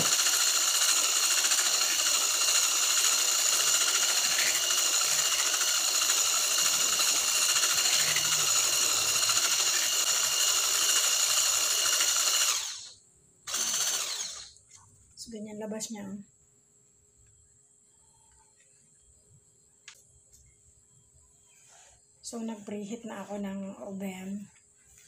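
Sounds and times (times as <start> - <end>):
electric hand mixer running: 0.0 - 14.6.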